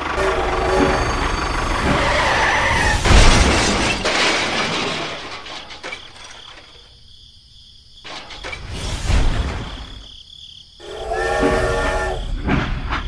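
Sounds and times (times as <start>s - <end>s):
toy crash smashing and shattering: 2.9s - 6.7s.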